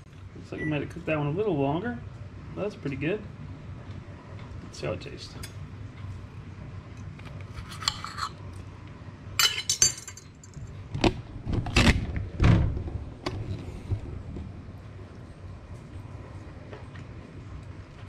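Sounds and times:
cutlery scraping a plate: 7.4 - 8.4
knife clattering on countertop: 9.4 - 10.3.

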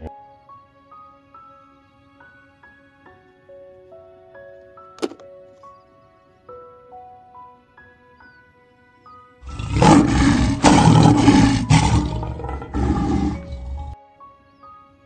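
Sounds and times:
lion roaring: 9.4 - 14.0.

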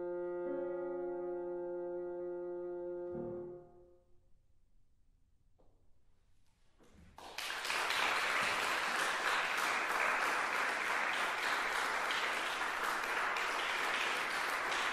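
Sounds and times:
audience applause: 7.2 - 14.9.

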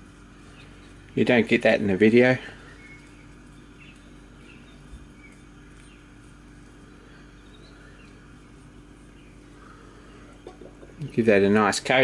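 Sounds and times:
steady low hum: 0.0 - 12.0
faint bird chirps: 2.3 - 11.3.

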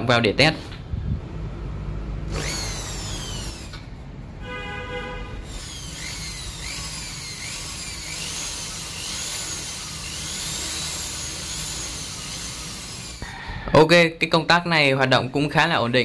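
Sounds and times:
electric drill motor whine: 2.3 - 3.9, 5.4 - 13.2.

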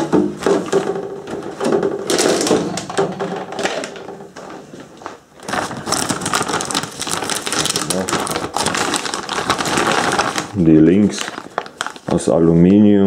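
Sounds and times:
plastic bags crinkling: 2.0 - 4.2, 4.9 - 12.8.

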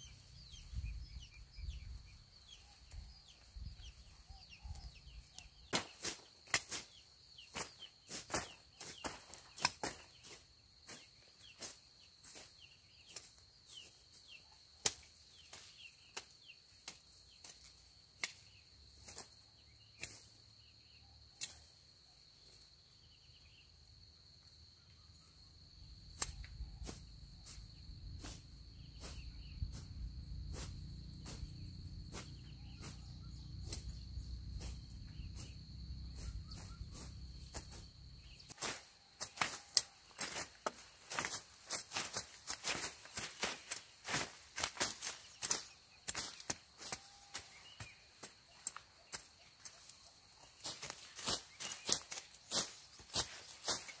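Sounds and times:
high insect drone: 16.6 - 54.0.

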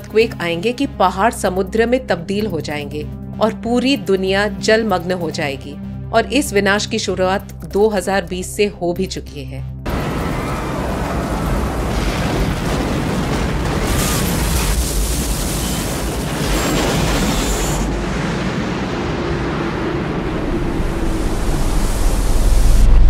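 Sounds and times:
dense destruction rumble: 9.9 - 23.0.

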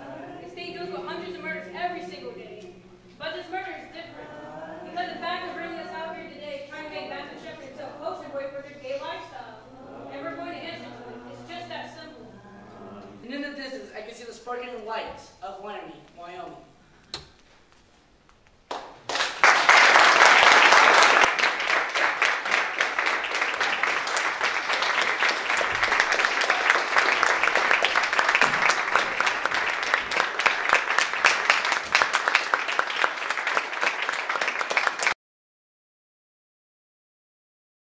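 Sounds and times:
audience applauding: 18.7 - 35.2.

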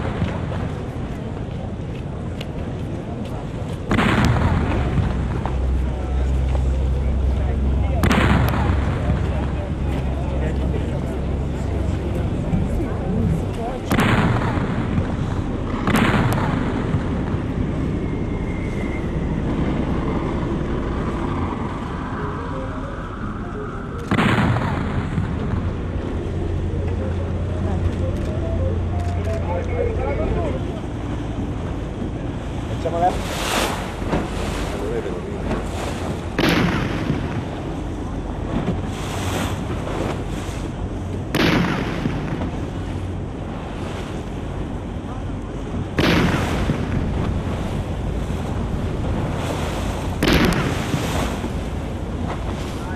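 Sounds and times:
boat rumble: 0.0 - 52.9
water lapping: 0.0 - 52.9
wind buffeting microphone: 0.0 - 52.9
cannon blast: 3.9 - 5.4, 8.0 - 9.3, 13.8 - 17.4, 24.1 - 25.7, 36.3 - 37.5, 41.3 - 42.5, 46.0 - 47.4, 50.2 - 51.2
wind on microphone: 30.4 - 52.9.

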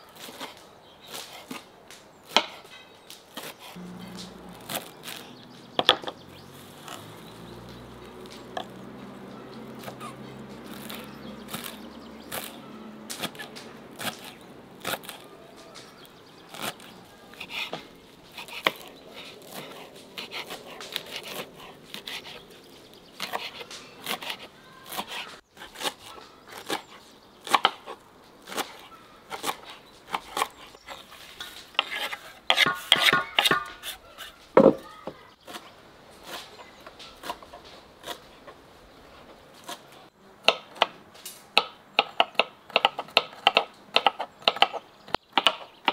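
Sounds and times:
knife chopping on wooden board: 3.4 - 6.2, 31.8 - 35.6.

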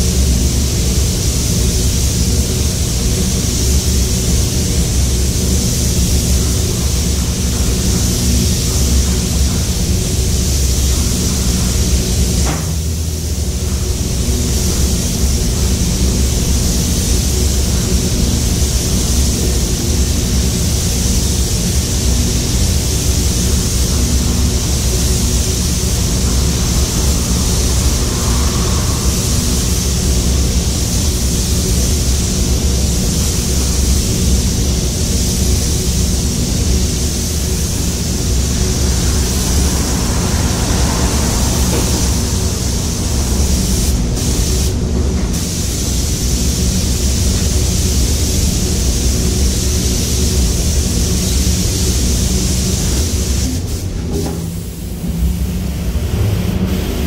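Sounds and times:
low air handling rumble: 0.0 - 57.0
spray guns hissing: 14.0 - 54.0.

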